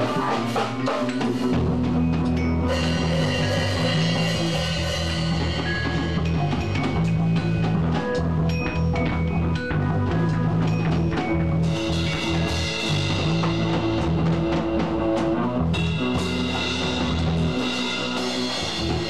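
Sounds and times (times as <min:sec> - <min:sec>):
cymbals ringing: 0:00.0 - 0:07.7
drum kit: 0:00.0 - 0:19.0
electric bass guitar: 0:00.0 - 0:19.0.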